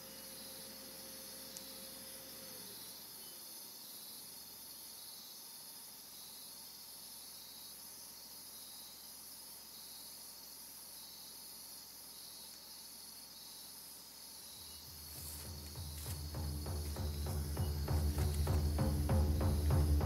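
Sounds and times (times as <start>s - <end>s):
crickets chirring: 0.0s - 20.0s
low musical drone: 15.3s - 20.0s.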